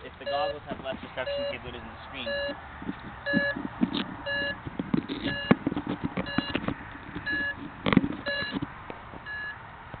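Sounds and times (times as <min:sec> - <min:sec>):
knocks and rustles: 0:02.8 - 0:09.3.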